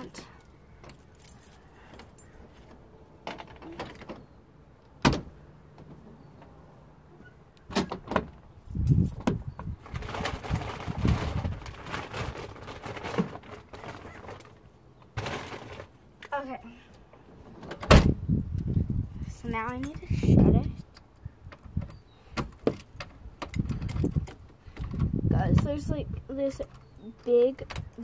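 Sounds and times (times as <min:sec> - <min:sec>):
thumps and rustling: 0:07.7 - 0:16.0.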